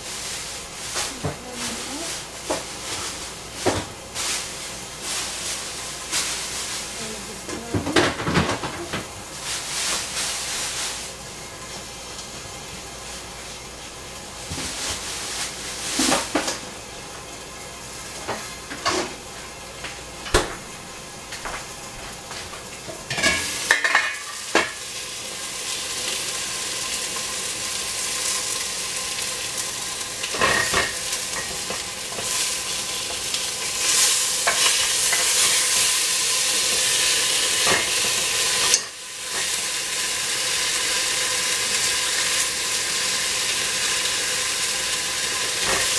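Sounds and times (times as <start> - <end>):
food sizzling in a pan: 0.0 - 45.9.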